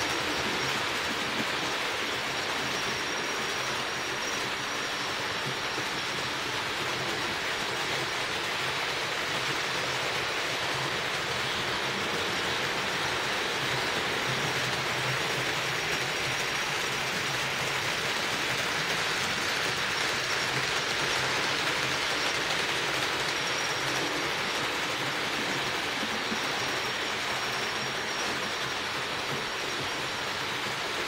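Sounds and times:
faint high whine: 0.0 - 31.0
model trains whirring on track: 0.0 - 31.0.

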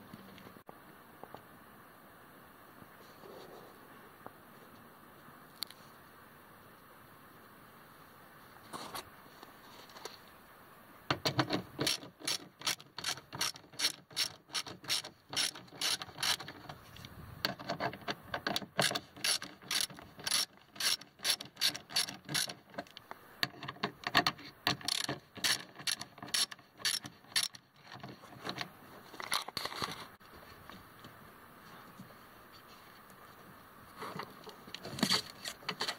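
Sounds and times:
socket ratchet clicking: 11.3 - 16.6, 17.5 - 23.0, 24.7 - 27.6.

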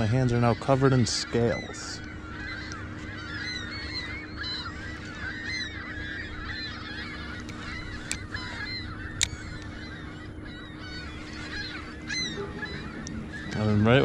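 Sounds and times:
flock of birds calling: 0.0 - 14.0
sharp clicks: 9.1 - 9.7.

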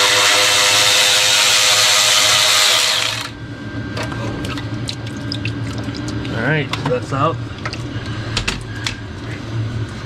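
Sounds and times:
cordless power tool whining: 0.0 - 3.4.

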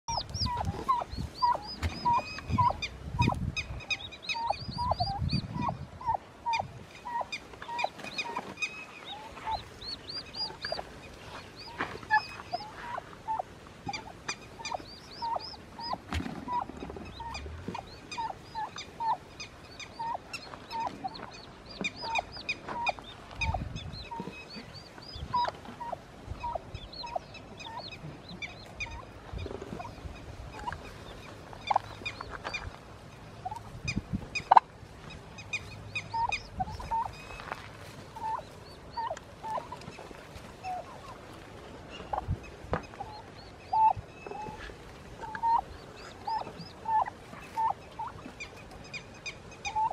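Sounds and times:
low turkey rumbles: 0.0 - 32.8
turkeys chirping: 0.0 - 41.3, 41.9 - 49.9
turkeys clucking: 0.0 - 49.9.

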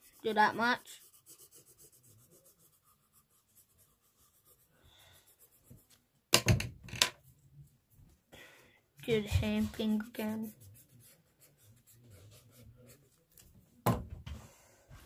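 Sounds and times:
pencil strokes on paper: 0.0 - 6.1, 9.0 - 13.4.

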